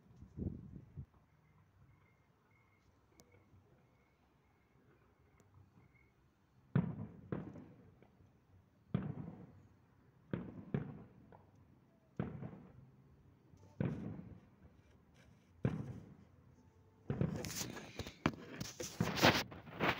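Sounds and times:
distant firework bursts: 0:08.9 - 0:09.7, 0:10.3 - 0:11.5, 0:12.2 - 0:13.0, 0:13.6 - 0:16.4, 0:17.1 - 0:19.9.

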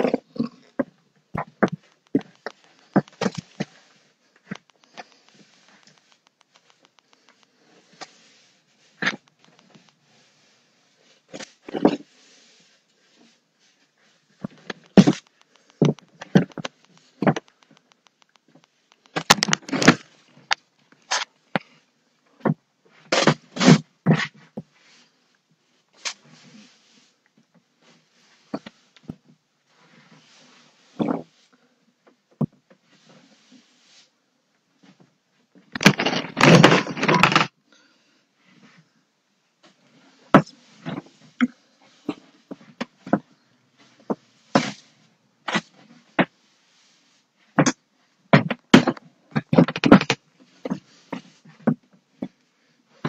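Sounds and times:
knocks of objects being handled: 0:00.0 - 0:08.1, 0:14.4 - 0:24.7, 0:35.6 - 0:37.6, 0:47.5 - 0:52.4
broom sweeping floor: 0:02.1 - 0:15.8, 0:25.9 - 0:27.2, 0:29.6 - 0:31.5, 0:32.8 - 0:34.2, 0:39.6 - 0:48.2.

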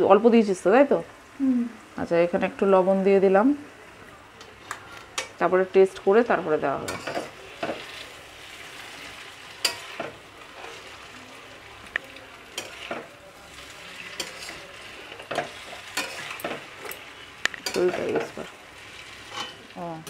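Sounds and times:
noodles sizzling in a pan: 0:00.0 - 0:20.0
metal spatula scraping a pan: 0:06.8 - 0:11.2, 0:12.4 - 0:19.7.

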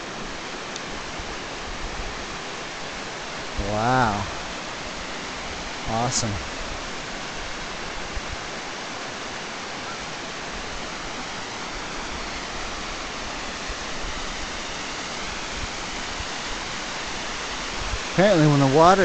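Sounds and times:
waterfall splashing into pool: 0:00.0 - 0:19.0.

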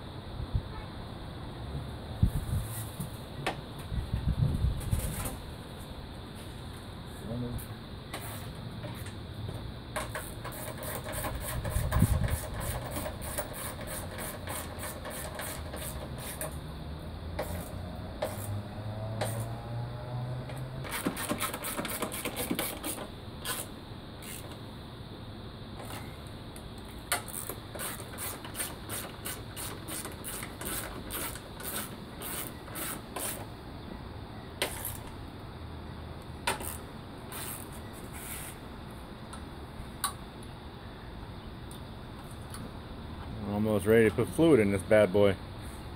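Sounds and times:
ratchet wrench clicking: 0:20.9 - 0:24.5, 0:27.1 - 0:33.4, 0:36.5 - 0:37.6.

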